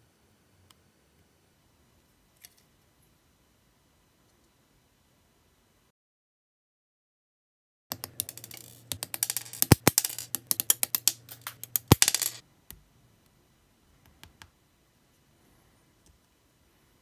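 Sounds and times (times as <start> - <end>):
small plastic parts clicking: 7.9 - 12.4.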